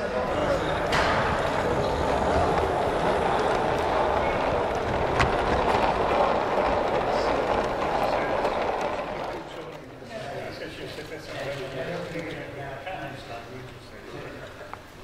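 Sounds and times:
model train rumbling on track: 0:00.0 - 0:09.9.

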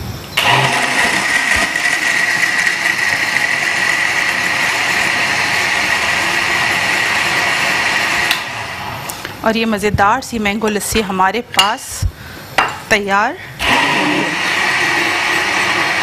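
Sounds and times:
blender whining: 0:00.4 - 0:09.2, 0:13.6 - 0:16.0.

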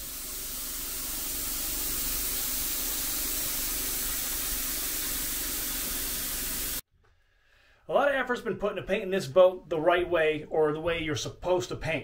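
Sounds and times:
paint spray gun hissing: 0:00.0 - 0:06.8.

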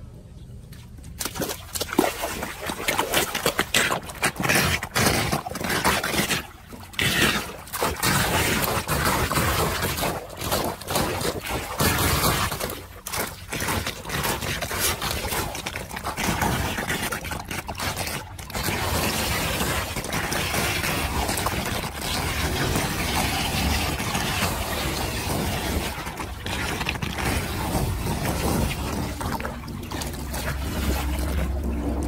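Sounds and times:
water gurgling down a drain: 0:01.3 - 0:32.0
plastic rake scraping a grate: 0:03.1 - 0:32.0.

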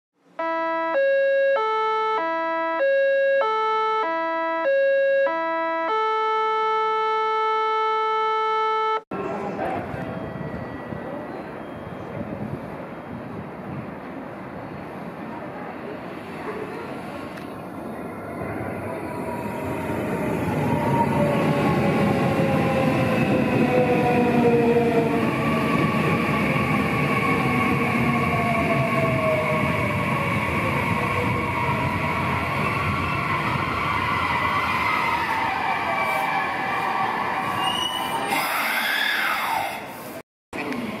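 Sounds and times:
electronic synthesized melody: 0:00.4 - 0:09.0.

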